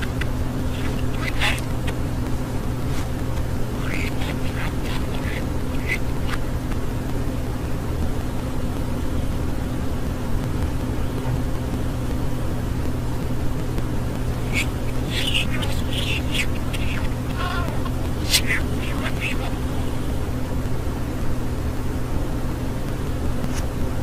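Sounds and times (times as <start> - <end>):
budgerigar chirps: 0.0 - 2.0, 3.8 - 6.5, 14.4 - 20.2
steady low hum: 0.0 - 24.0.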